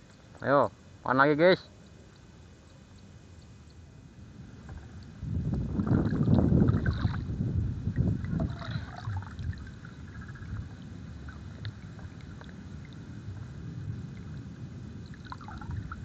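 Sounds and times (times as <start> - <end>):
water sloshing and splashing: 4.6 - 14.4, 15.0 - 16.0.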